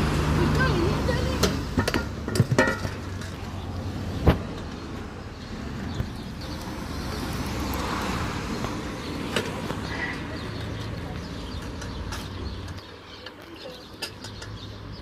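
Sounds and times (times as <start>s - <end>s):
street traffic noise: 0.0s - 15.0s
scooter clacking on concrete: 0.4s - 3.6s, 7.7s - 15.0s.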